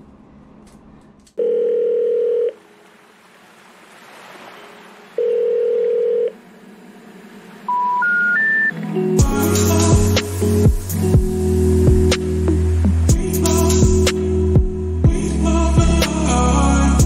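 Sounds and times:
phone ringback beeps: 0:01.4 - 0:02.6, 0:05.2 - 0:06.4, 0:07.7 - 0:08.8
rising three-note beeps: 0:07.6 - 0:09.2
music: 0:08.6 - 0:17.0.

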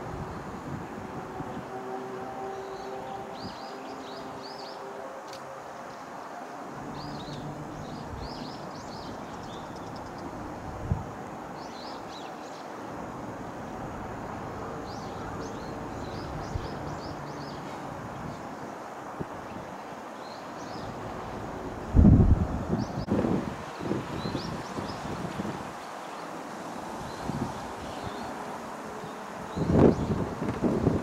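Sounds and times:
small birds chirping: 0:07.0 - 0:10.4, 0:27.0 - 0:30.3.

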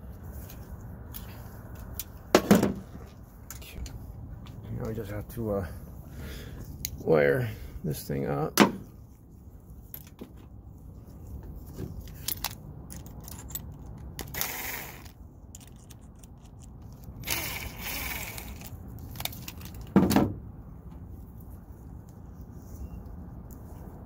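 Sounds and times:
rustling noise: 0:00.0 - 0:05.2, 0:08.8 - 0:14.0, 0:20.6 - 0:24.0
wire and tool clicks: 0:00.4 - 0:02.4, 0:12.0 - 0:20.0.

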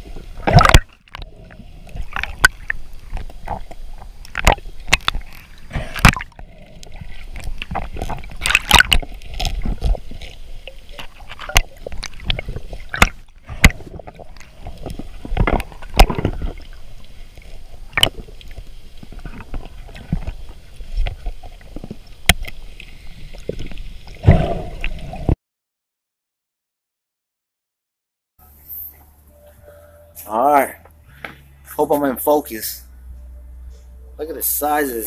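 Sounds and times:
rush of water: 0:00.0 - 0:25.4
underwater water wash: 0:00.0 - 0:25.4
underwater clicks and knocks: 0:00.4 - 0:01.3, 0:01.9 - 0:16.8, 0:17.4 - 0:22.6.

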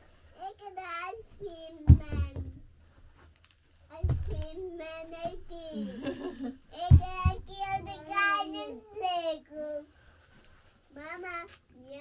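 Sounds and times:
child singing: 0:00.5 - 0:02.6, 0:06.7 - 0:09.9.

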